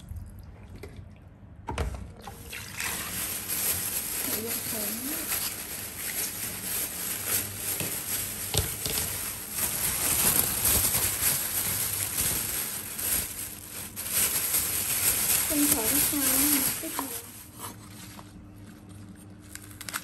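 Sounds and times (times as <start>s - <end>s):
plastic bag rustling: 2.3s - 20.0s
leaves brushing together: 2.8s - 18.2s.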